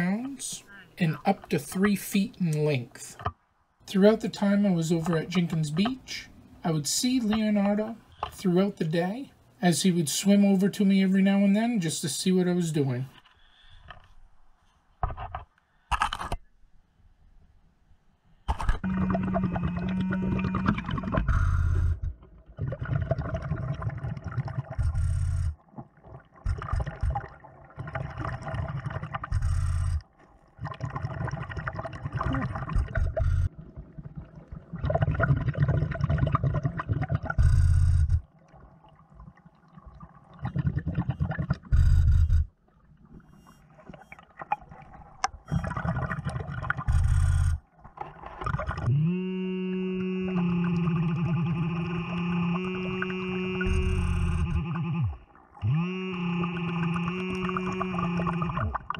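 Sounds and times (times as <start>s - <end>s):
exhaled bubbles gushing: 18.8s - 48.9s, 50.2s - 58.9s
diver breathing underwater: 19.1s - 22.1s, 32.8s - 33.5s, 37.3s - 38.3s, 41.6s - 42.5s, 48.8s - 58.8s.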